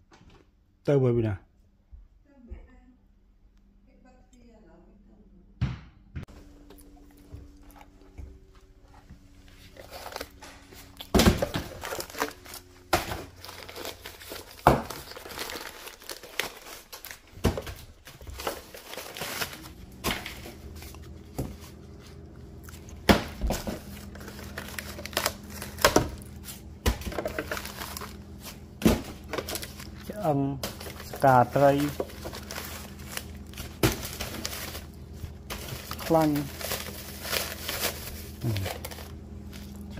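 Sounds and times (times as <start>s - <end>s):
plastic bags crinkling: 9.4s - 39.9s.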